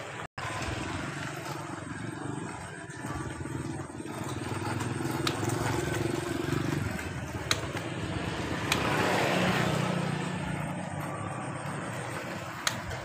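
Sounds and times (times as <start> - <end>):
vehicle engine running: 0.0 - 13.0
sharp clicks: 7.3 - 9.2, 12.6 - 13.0.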